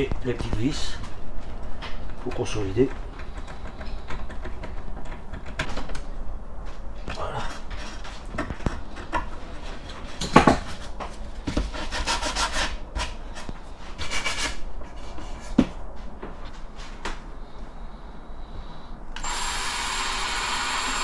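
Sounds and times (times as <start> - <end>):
hand tool scraping wood: 11.6 - 15.4.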